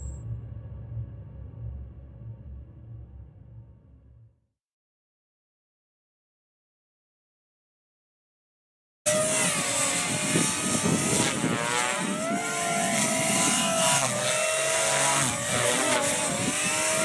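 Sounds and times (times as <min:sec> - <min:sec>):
rc helicopter motor whine: 0:09.1 - 0:17.0
spinning blades rushing: 0:09.1 - 0:17.0.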